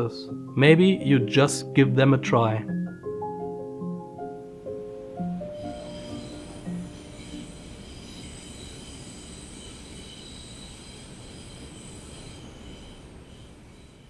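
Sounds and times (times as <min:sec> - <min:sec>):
train rumbling: 0:05.2 - 0:14.0
high-pitched wheel squeal: 0:05.3 - 0:14.0.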